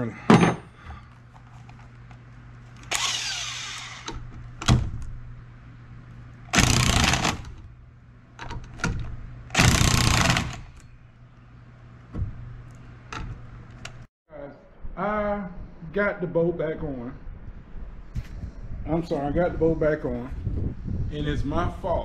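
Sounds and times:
cordless drill spinning: 2.8s - 4.2s, 6.6s - 7.5s, 9.6s - 10.6s.

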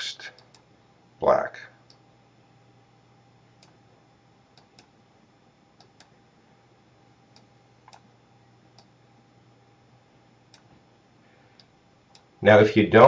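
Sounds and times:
low steady hum: 0.0s - 13.0s
computer mouse clicks: 3.6s - 3.8s, 4.5s - 4.9s, 5.8s - 6.1s, 7.3s - 8.1s.

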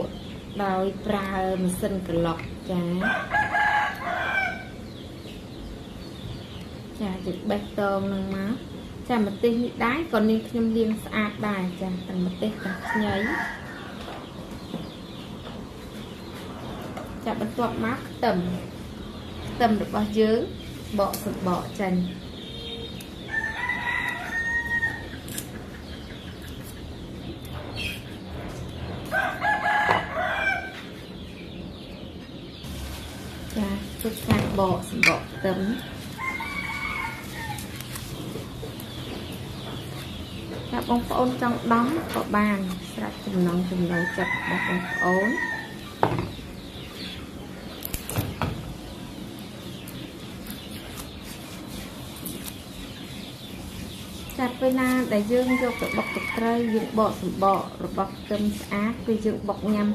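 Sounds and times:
small birds calling: 0.0s - 59.9s
rooster crowing: 3.0s - 4.7s, 23.3s - 25.0s, 36.1s - 37.7s, 43.9s - 45.8s, 55.5s - 57.0s
chickens calling: 11.2s - 59.9s.

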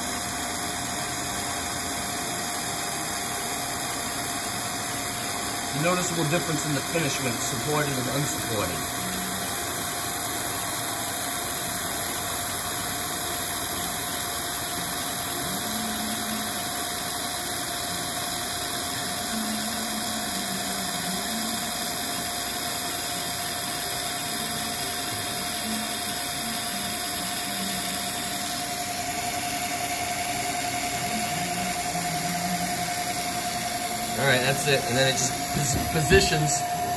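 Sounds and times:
milling machine humming: 0.0s - 36.9s
cutter chattering: 33.6s - 36.9s.

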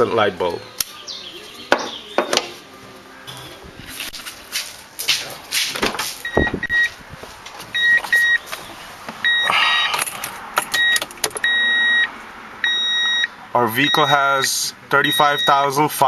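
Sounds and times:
car warning chime beeping: 6.2s - 7.0s, 7.7s - 8.5s, 9.2s - 10.1s, 10.7s - 16.0s.

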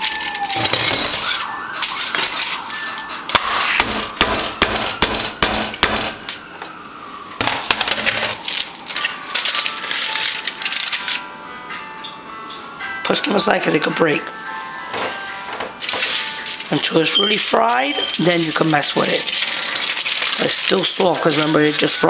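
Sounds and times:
utensils tapping pan and dishes: 0.0s - 3.3s.

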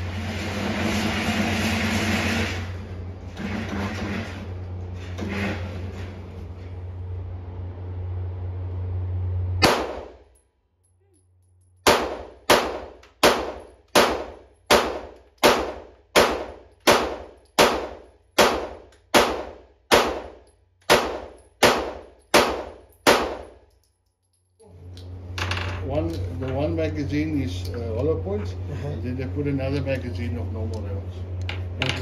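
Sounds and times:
gunshots with ringing decay: 9.6s - 10.2s, 11.8s - 23.6s.

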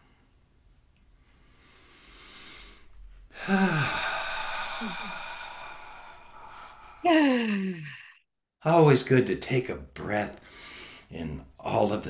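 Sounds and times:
person breathing in: 1.5s - 7.2s
person sighing: 3.3s - 8.2s.

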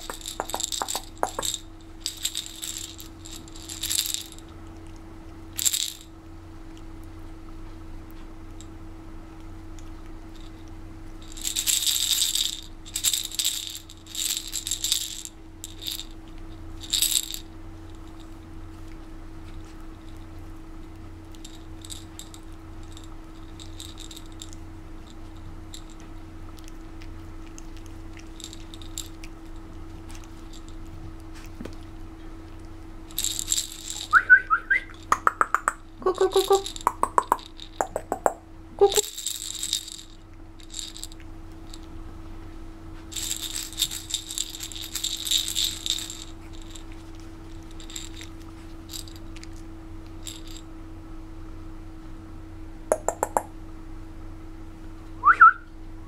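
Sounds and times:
rattle toy shaking: 0.0s - 4.5s, 5.6s - 6.2s, 10.3s - 10.6s, 11.2s - 18.5s, 20.9s - 27.1s, 27.7s - 31.4s, 33.0s - 41.9s, 43.0s - 50.7s, 52.9s - 53.5s
steady low hum: 0.0s - 56.0s.

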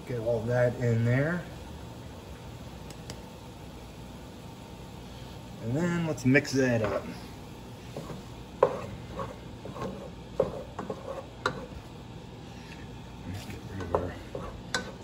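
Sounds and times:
spoon stirring meat in pot: 7.9s - 11.9s, 13.4s - 15.0s.

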